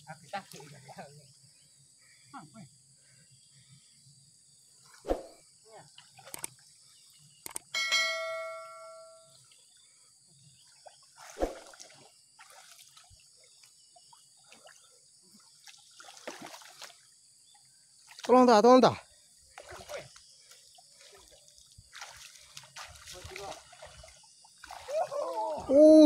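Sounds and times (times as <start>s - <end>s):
water splashes: 0.0s - 1.2s, 4.8s - 7.1s, 10.6s - 18.6s, 19.5s - 26.0s
bell ding: 7.8s - 9.3s.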